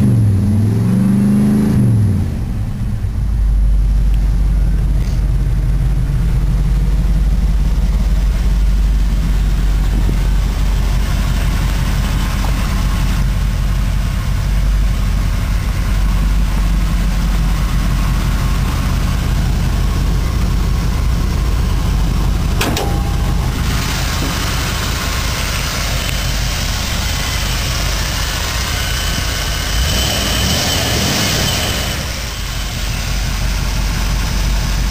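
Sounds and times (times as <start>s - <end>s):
engine idling: 2.2s - 34.9s
sharp knock: 22.6s - 26.2s.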